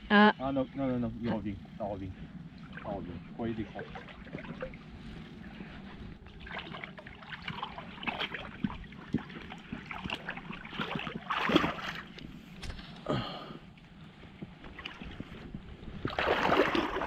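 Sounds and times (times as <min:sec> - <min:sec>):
fish splashing in water: 0:06.3 - 0:12.2, 0:16.0 - 0:17.0.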